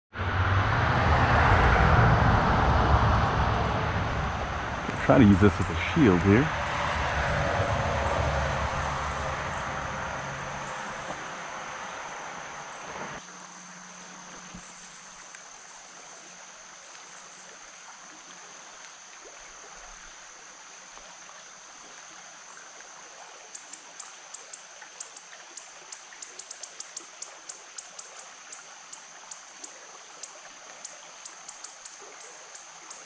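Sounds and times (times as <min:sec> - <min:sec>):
creek water trickling: 0:01.2 - 0:33.0.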